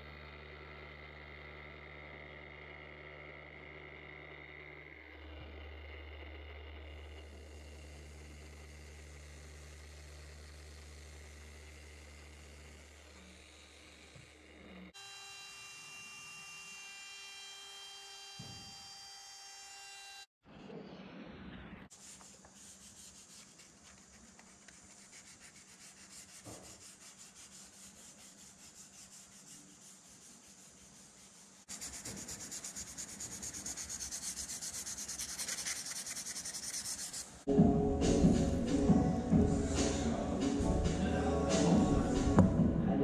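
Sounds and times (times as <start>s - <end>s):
router whine: 0.0s - 22.0s
hand sanding wood: 21.9s - 37.5s.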